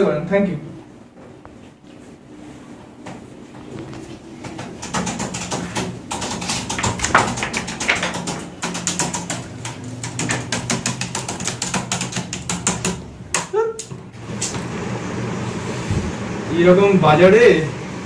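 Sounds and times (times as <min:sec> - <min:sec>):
fast typing on laptop keyboard: 0:04.5 - 0:13.4.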